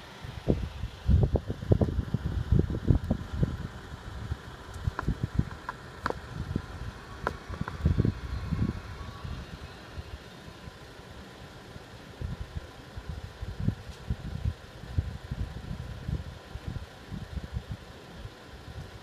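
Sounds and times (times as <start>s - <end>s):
uneven low rumbles: 0.0s - 11.0s
idling diesel engines humming: 0.0s - 19.0s.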